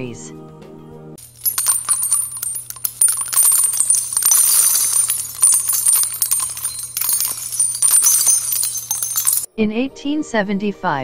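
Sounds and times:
metallic jingling: 0:01.2 - 0:09.5.

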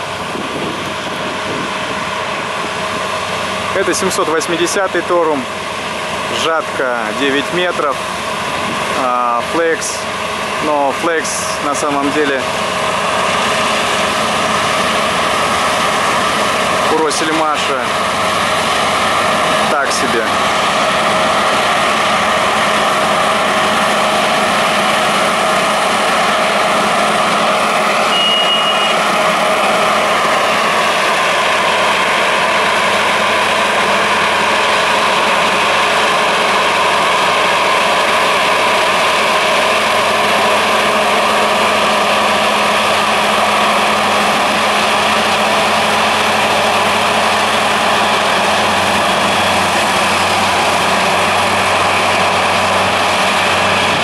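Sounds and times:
combine harvester drone: 0:00.0 - 0:54.0
short high beep: 0:28.1 - 0:29.0.

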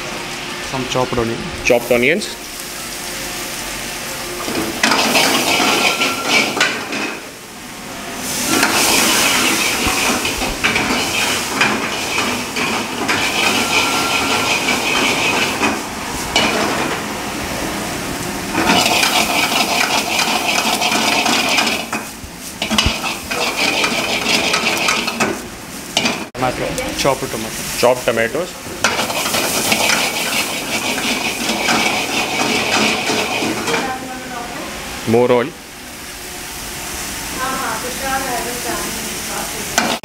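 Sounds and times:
onions sizzling in hot oil: 0:01.8 - 0:35.0, 0:35.8 - 0:40.0
ladle scraping metal pan: 0:08.4 - 0:15.8, 0:22.6 - 0:25.3, 0:28.9 - 0:33.9.

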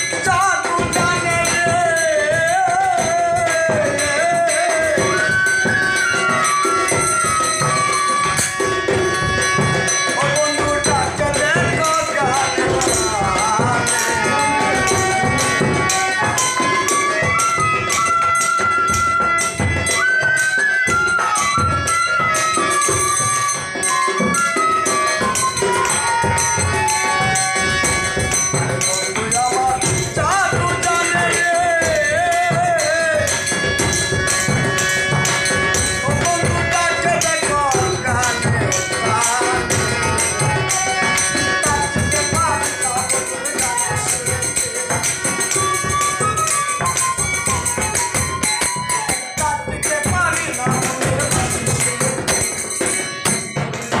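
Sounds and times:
harmonium chords: 0:00.0 - 0:54.0
jingling hand percussion: 0:00.0 - 0:54.0
bamboo flute melody: 0:04.8 - 0:10.4, 0:13.5 - 0:28.8, 0:30.5 - 0:50.9.

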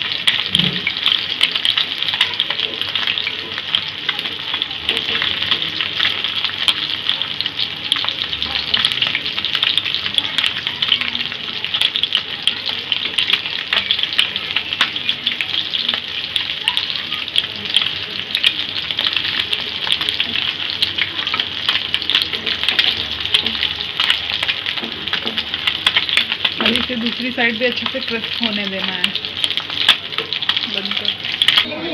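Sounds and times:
fish sizzling in hot oil: 0:00.0 - 0:31.9.

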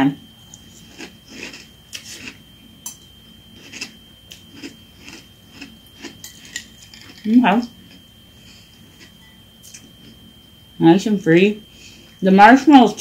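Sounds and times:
cereal crunching: 0:00.6 - 0:02.4, 0:03.5 - 0:08.0.

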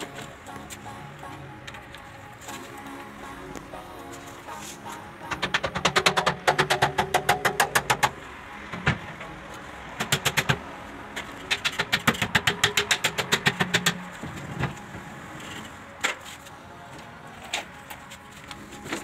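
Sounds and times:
hammer tapping metal rail: 0:05.4 - 0:08.2, 0:11.5 - 0:14.2.

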